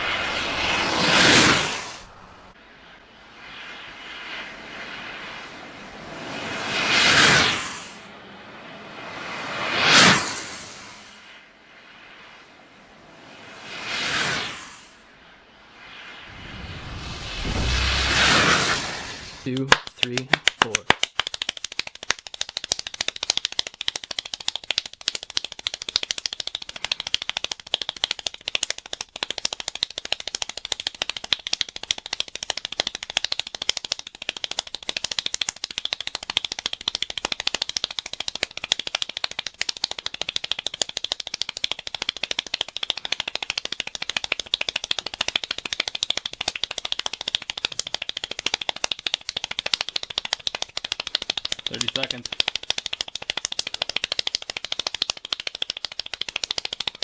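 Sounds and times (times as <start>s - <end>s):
rapid hand clapping: 19.5s - 57.0s.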